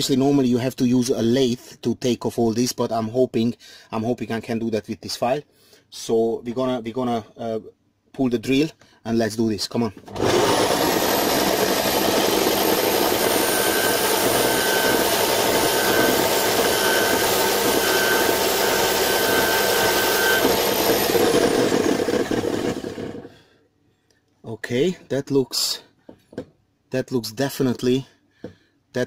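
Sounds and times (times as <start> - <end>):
file scraping spinning metal: 10.1 - 23.3
electric drill whining: 10.1 - 23.4.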